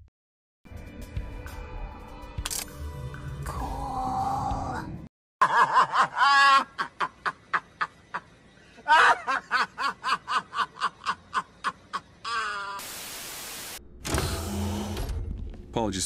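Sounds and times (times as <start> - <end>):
man laughing hard: 5.4 - 12.8.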